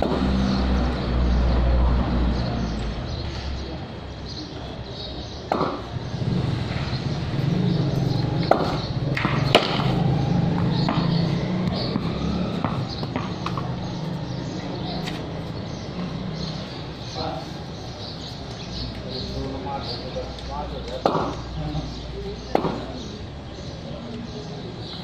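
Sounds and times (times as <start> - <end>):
tennis ball hitting bat: 5.5 - 5.9, 8.4 - 10.0, 10.6 - 13.7, 21.0 - 21.4, 22.5 - 22.9.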